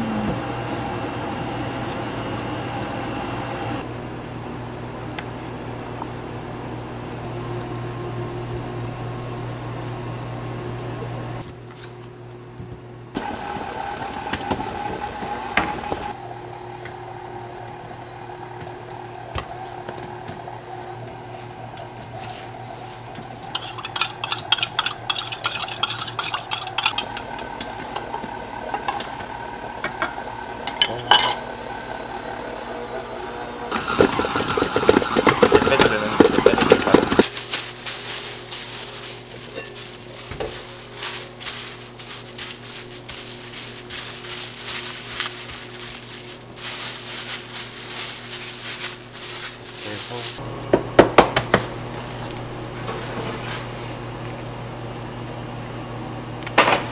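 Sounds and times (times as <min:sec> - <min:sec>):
stand mixer running: 0:00.0 - 0:04.0, 0:13.2 - 0:37.3.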